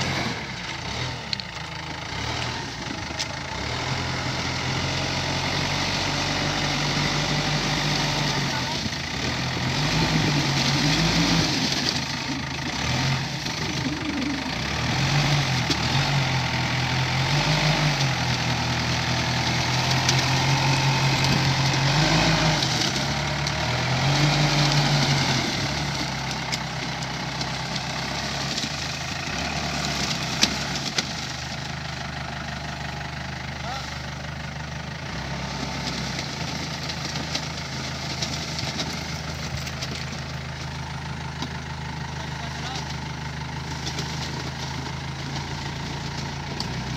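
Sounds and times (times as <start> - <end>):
diesel engine revving: 0.0 - 46.9.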